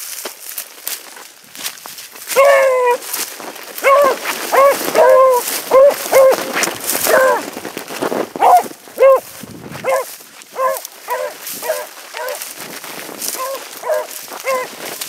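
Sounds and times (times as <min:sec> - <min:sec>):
hound baying: 0:02.3 - 0:03.1, 0:03.8 - 0:07.5, 0:08.4 - 0:12.5, 0:13.2 - 0:14.8.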